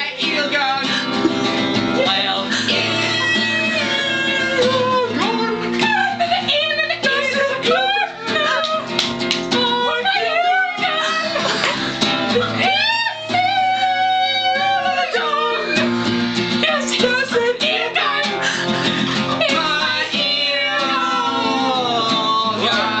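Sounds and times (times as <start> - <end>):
men singing: 0.0 - 6.2, 13.9 - 16.0, 16.6 - 23.0
acoustic guitar strummed: 0.0 - 23.0.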